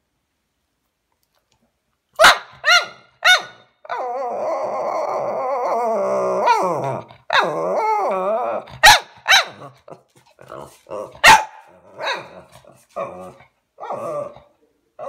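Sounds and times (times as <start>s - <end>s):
dog barking: 2.2s - 3.7s, 8.8s - 9.8s, 11.2s - 12.6s
dog yipping: 2.2s - 4.2s
dog grumbling: 4.2s - 8.8s, 9.6s - 11.2s, 11.8s - 15.0s.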